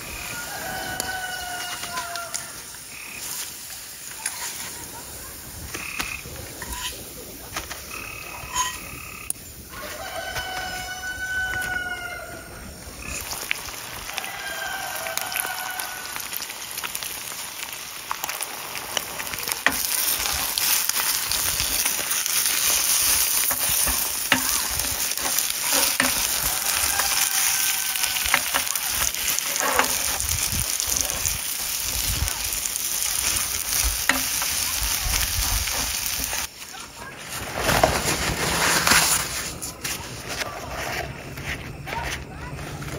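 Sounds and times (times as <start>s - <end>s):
eggs sizzling in a pan: 0.0s - 37.1s
spatula scraping and tapping pan: 6.0s - 7.8s, 8.4s - 9.0s, 19.6s - 30.4s, 33.2s - 34.6s.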